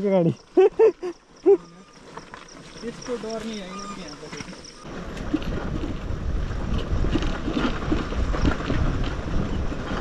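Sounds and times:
wind buffeting microphone: 0:03.1 - 0:10.0.

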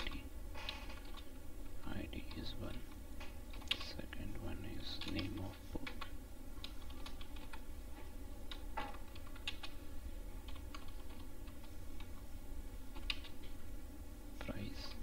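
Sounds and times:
keyboard typing: 0:00.0 - 0:01.3, 0:02.2 - 0:04.0, 0:05.0 - 0:07.7, 0:08.5 - 0:09.8, 0:10.4 - 0:12.2, 0:12.9 - 0:13.4.

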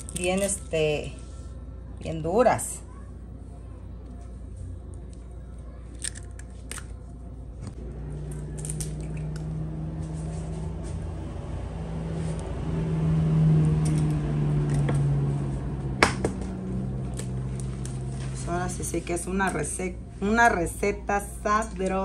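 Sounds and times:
pitched low hum: 0:02.9 - 0:22.0
eggshells cracking: 0:05.9 - 0:07.0.

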